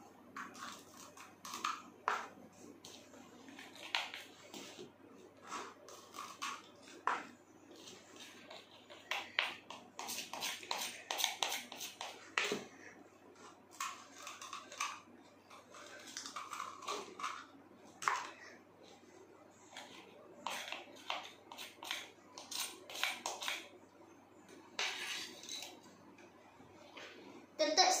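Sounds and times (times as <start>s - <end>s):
plastic spoon scraping and tapping: 0.3s - 12.8s, 13.4s - 18.4s, 19.6s - 23.7s, 24.5s - 25.8s.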